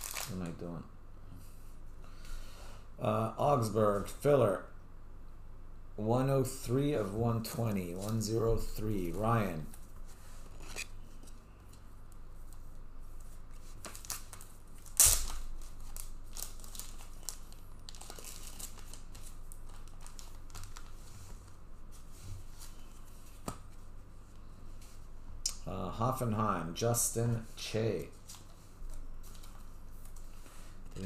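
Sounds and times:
plastic packaging crinkling: 0.0s - 0.4s, 13.8s - 21.1s.

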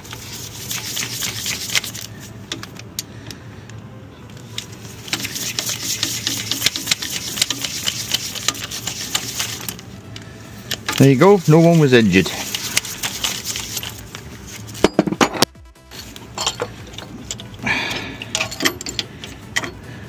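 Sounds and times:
ratchet clicking rapidly: 0.1s - 2.8s, 5.0s - 9.8s, 10.6s - 14.0s.

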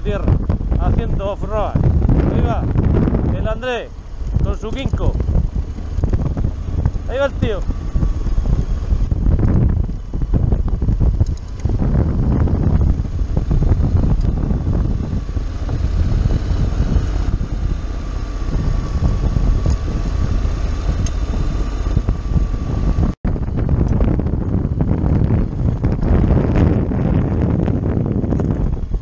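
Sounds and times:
wind buffeting microphone: 0.0s - 29.0s
scooter engine and tyres on gravel: 3.9s - 22.8s.

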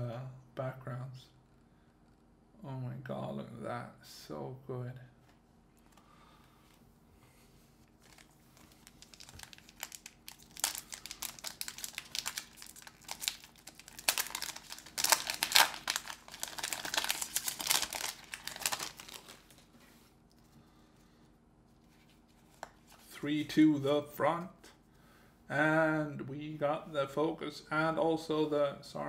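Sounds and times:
plastic wrapper crinkling: 7.9s - 20.5s, 21.8s - 23.1s.

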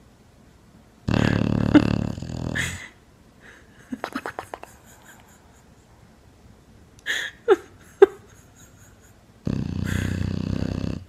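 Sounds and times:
dog snoring and wheezing: 1.1s - 3.0s, 9.4s - 11.0s.

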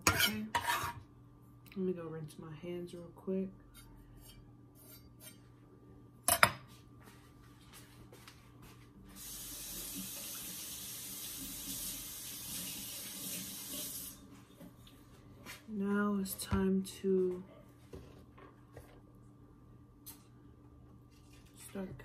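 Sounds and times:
kitchen tap running: 9.2s - 14.2s.

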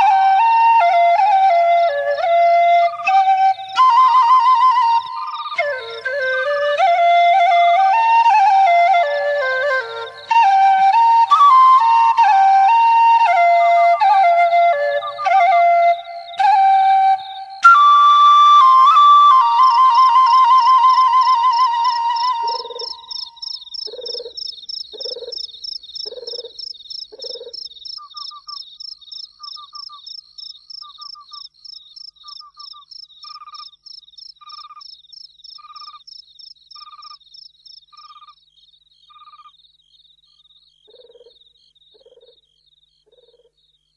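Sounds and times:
crickets trilling: 2.0s - 43.9s
frogs calling: 2.1s - 6.9s, 19.6s - 43.9s.

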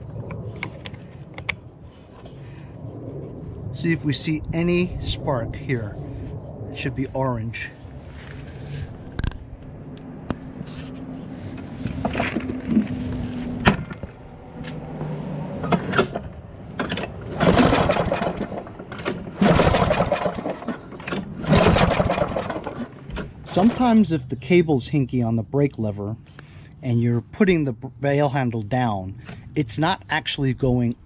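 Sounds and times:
mower engine cranking with pull cord: 15.6s - 24.0s.

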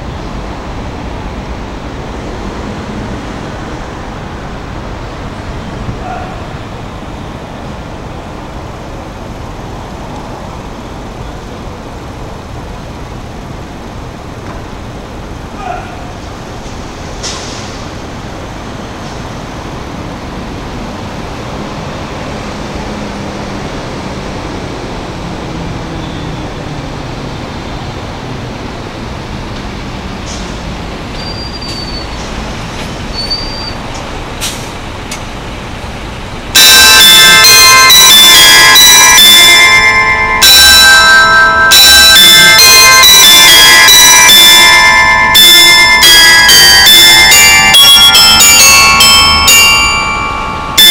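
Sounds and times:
road traffic rumble: 0.0s - 50.9s
short high squeals: 33.1s - 33.8s
tower bells ringing: 36.6s - 50.9s.

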